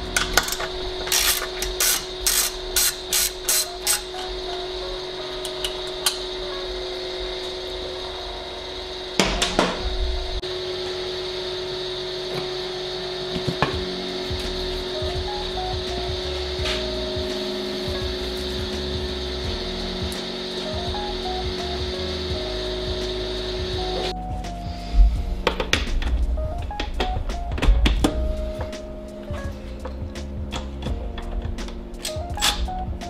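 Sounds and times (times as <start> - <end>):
steady hum: 0.0 - 33.0
socket ratchet clicking: 0.2 - 4.2.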